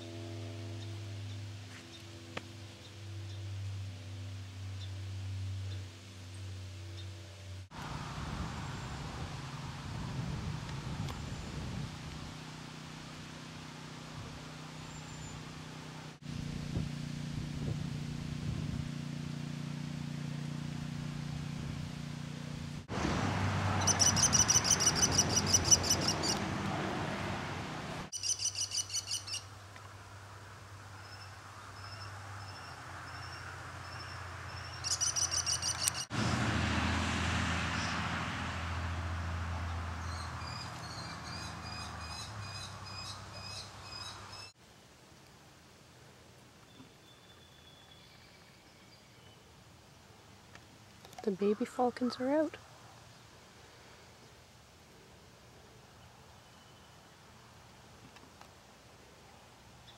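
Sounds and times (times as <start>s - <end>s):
kestrels calling: 23.8s - 26.4s, 28.1s - 29.5s, 31.0s - 36.1s.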